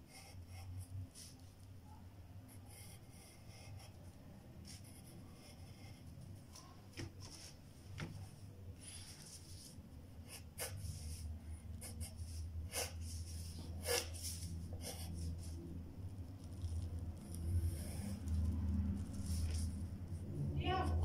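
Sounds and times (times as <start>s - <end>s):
pencil scratching on paper: 0.0s - 1.6s, 2.5s - 6.7s, 8.8s - 15.6s, 16.3s - 21.0s
low steady hum: 0.0s - 21.0s.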